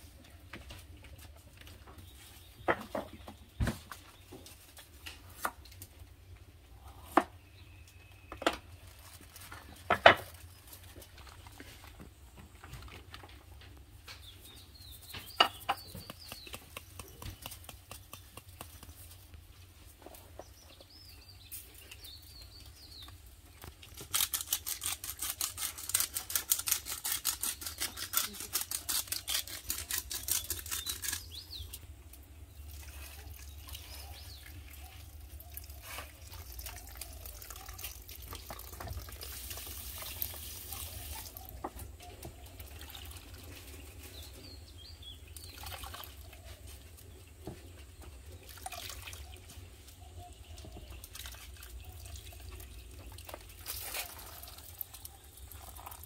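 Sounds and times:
faint bird chirps: 0:06.8 - 0:08.8.

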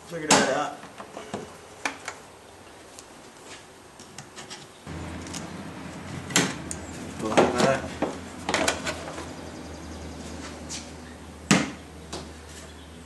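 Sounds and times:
low steady hum: 0:04.8 - 0:13.0.

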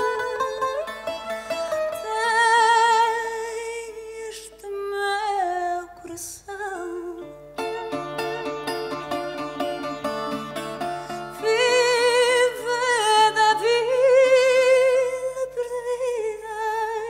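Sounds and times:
woman singing with vibrato: 0:01.9 - 0:08.1, 0:10.3 - 0:17.0
acoustic guitar: 0:07.2 - 0:15.2.

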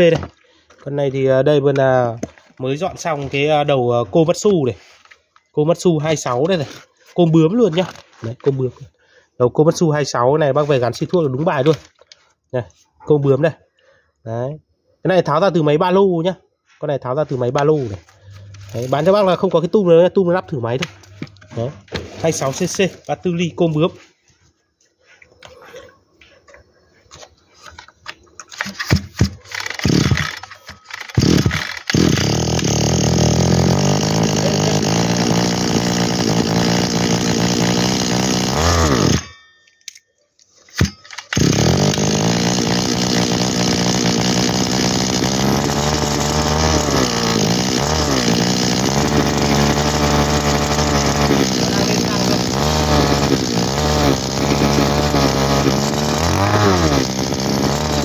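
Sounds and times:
two-stroke engine starting and running: 0:17.7 - 0:19.7, 0:28.5 - 0:39.5, 0:40.6 - 0:58.0.

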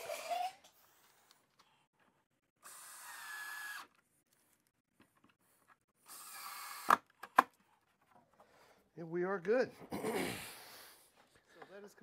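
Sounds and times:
power drill driving screws into wood: 0:02.6 - 0:03.9, 0:06.0 - 0:07.5.

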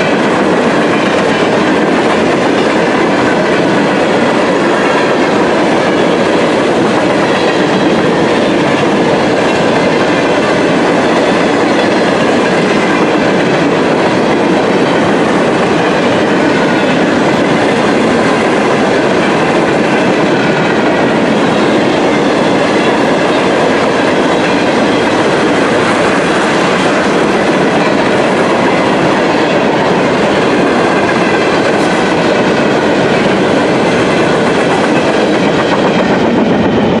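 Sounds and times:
train wheels rumbling on rails: 0:00.0 - 0:37.0.

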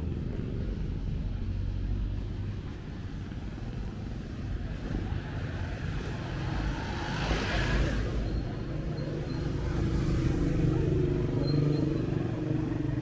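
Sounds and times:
traffic rumble: 0:00.0 - 0:13.0
vehicle passing close: 0:04.8 - 0:13.0.

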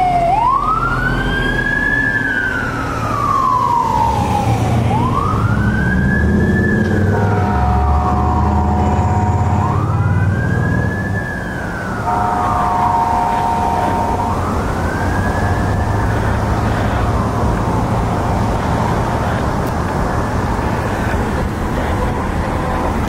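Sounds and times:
fire engine siren wailing: 0:00.0 - 0:23.0
road traffic rumble: 0:00.0 - 0:23.0
two-note siren tone: 0:05.9 - 0:11.2, 0:11.8 - 0:16.2.

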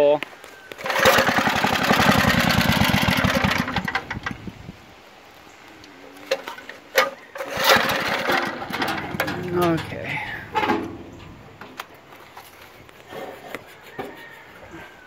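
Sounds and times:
pull-start engine running: 0:00.8 - 0:04.5, 0:07.0 - 0:11.6.

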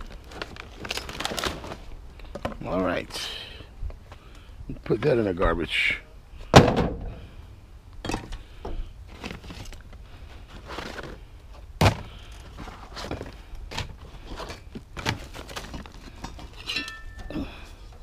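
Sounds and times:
wooden boards knocking and clattering: 0:06.6 - 0:07.1.

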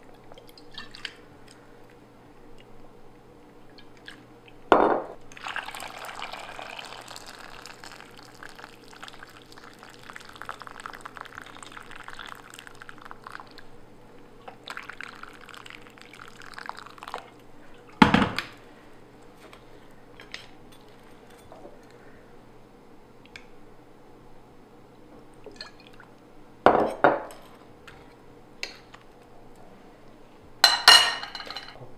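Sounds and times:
water pouring into pot: 0:05.3 - 0:13.7, 0:14.6 - 0:17.2.

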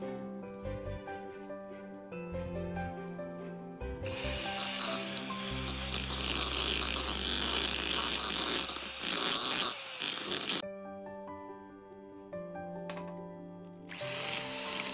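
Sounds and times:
electric hand mixer whining: 0:04.0 - 0:10.6, 0:13.9 - 0:14.9.

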